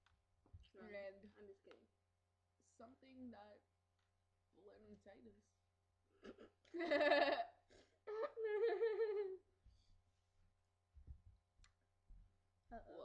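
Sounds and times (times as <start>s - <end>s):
girl laughing: 6.7s - 9.4s.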